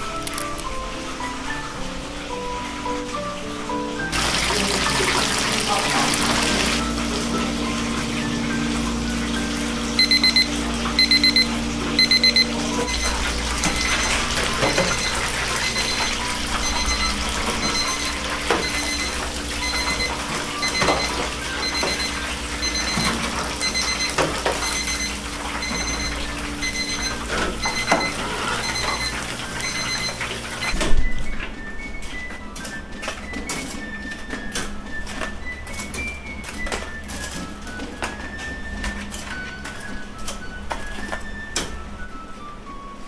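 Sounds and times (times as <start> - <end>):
chicken sizzling in deep fryer: 0.0 - 31.8
kitchen timer beeping: 5.3 - 30.9.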